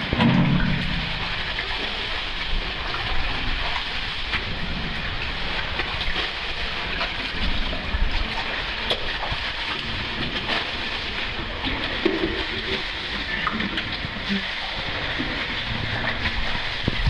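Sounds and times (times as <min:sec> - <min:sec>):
rushing water: 0:00.0 - 0:17.0
water sloshing and splashing: 0:00.0 - 0:17.0.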